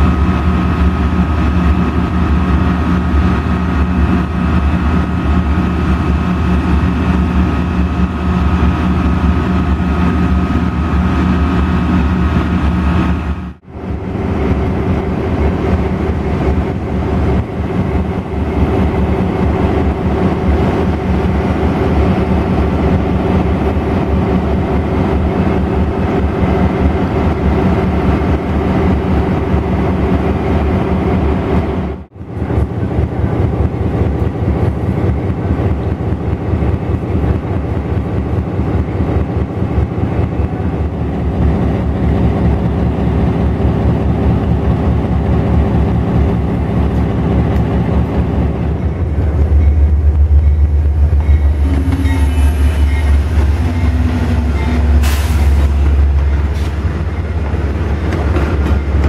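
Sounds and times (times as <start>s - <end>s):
diesel locomotive engines running: 0.0s - 59.0s.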